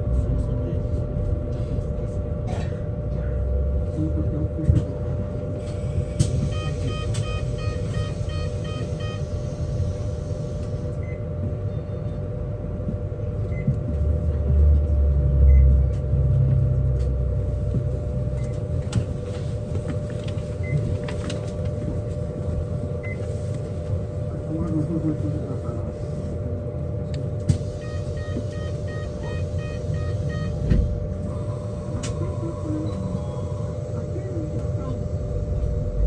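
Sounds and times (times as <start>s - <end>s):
bus road rumble: 0.0s - 36.0s
steady hum: 0.0s - 36.0s.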